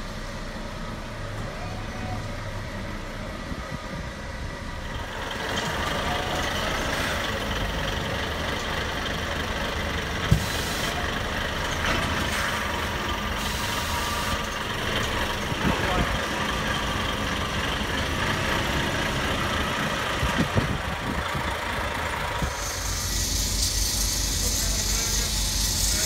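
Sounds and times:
truck diesel engine running: 0.0s - 26.0s
hiss of air: 10.3s - 11.0s, 12.2s - 14.4s, 22.4s - 26.0s.

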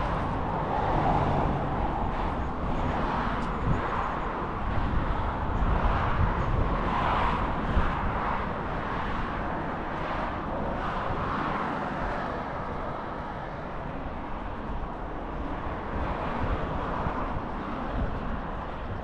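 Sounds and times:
city traffic noise: 0.0s - 19.0s.

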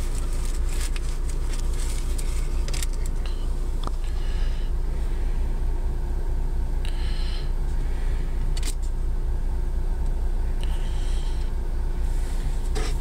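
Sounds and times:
faint rustle: 0.0s - 3.4s
car cabin rumble: 0.0s - 13.0s.

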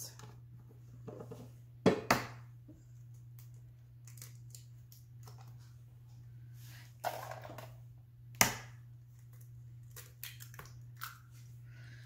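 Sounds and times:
eggshell cracking on bowl: 9.2s - 11.2s.

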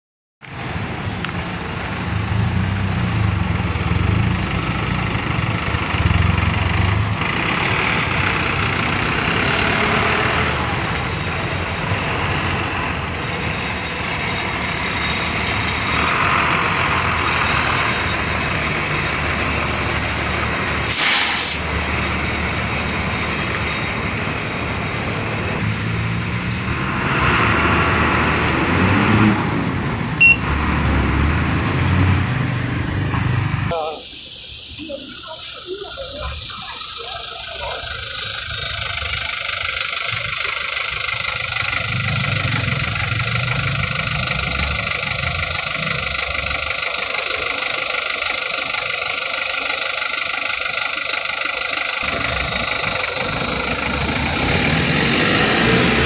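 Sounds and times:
bus diesel engines idling: 0.4s - 56.0s
passing traffic: 0.4s - 56.0s
air brake hiss: 20.8s - 21.7s.

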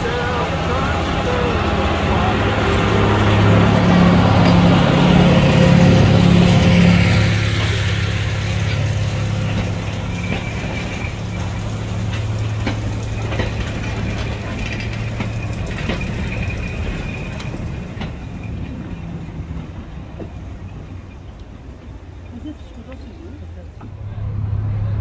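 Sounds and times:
train wheel clicks: 0.0s - 22.0s
diesel locomotive engine hum: 0.0s - 25.0s
thin high wheel squeal: 2.2s - 18.6s.

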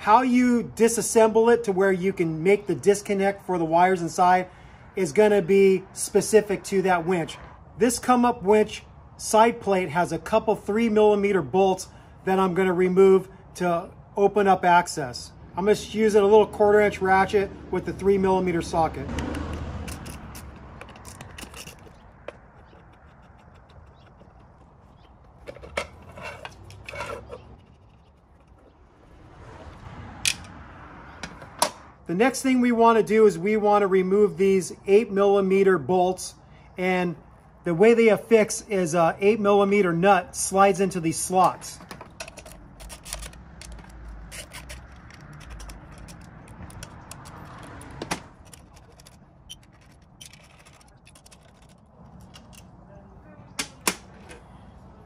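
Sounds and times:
hand ratchet clicking: 19.2s - 24.6s, 42.4s - 52.6s
metal clinks and clatter: 19.8s - 28.6s, 42.2s - 52.7s
metal parts scraping: 19.8s - 28.6s, 42.2s - 52.7s.

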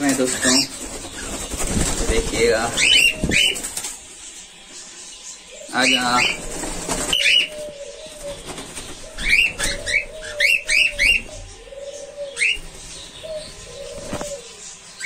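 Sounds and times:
doves cooing: 0.0s - 15.0s
cockatiels chirping: 0.1s - 1.5s, 9.0s - 15.0s.

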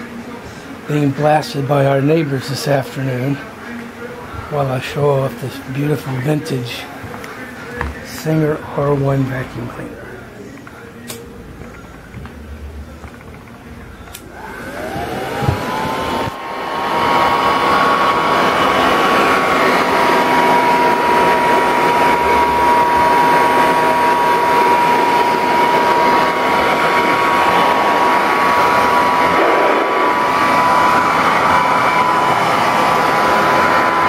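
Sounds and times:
vacuum cleaner motor whine: 14.1s - 34.0s
rushing air: 15.2s - 34.0s.

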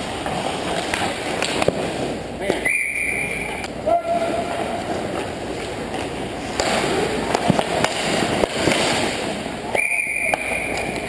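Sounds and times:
hockey sticks clacking: 0.0s - 1.8s, 4.8s - 11.0s.

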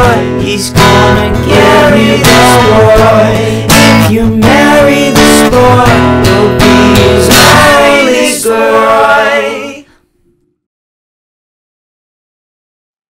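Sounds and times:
song with guitar and singing: 0.0s - 10.0s.

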